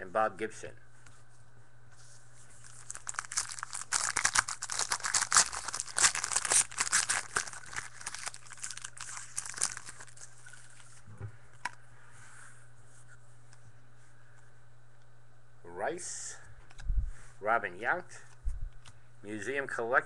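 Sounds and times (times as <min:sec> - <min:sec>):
wrapper tearing and crinkling: 0:02.6 - 0:10.9.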